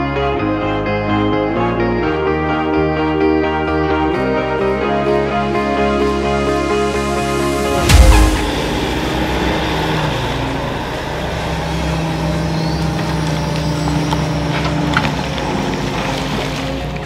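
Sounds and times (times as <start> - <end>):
excavator diesel engine running: 7.6 - 17.0
heavy thump: 7.8 - 10.8.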